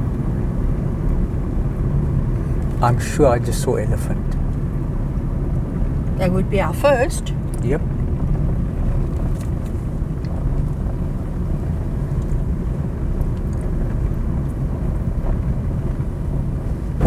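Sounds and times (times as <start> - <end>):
car engine and tyres rumbling: 0.0 - 17.0.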